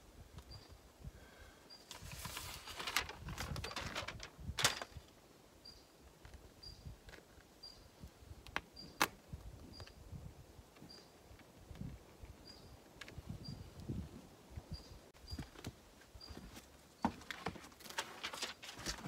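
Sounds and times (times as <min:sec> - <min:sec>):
tape crinkling and rustling: 0:01.9 - 0:05.1, 0:17.2 - 0:19.0.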